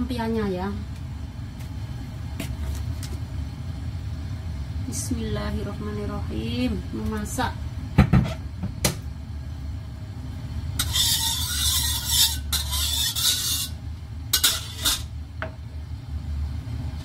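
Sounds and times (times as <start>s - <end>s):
steady low hum: 0.0s - 17.0s
metal spatula scraping wok: 10.8s - 15.1s.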